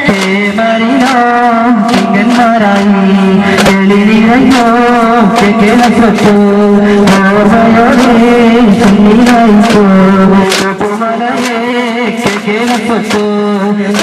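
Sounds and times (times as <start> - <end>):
devotional singing: 0.0 - 14.0
percussion strokes: 0.0 - 14.0.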